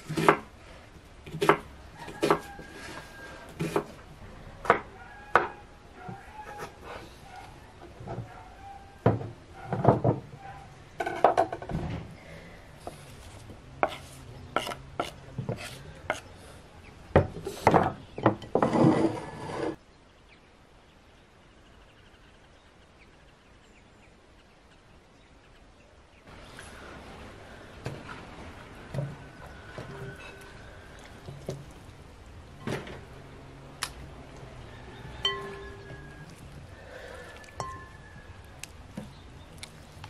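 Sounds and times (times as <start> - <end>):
knife chopping onion on wooden board: 0.1 - 0.5, 1.3 - 2.5.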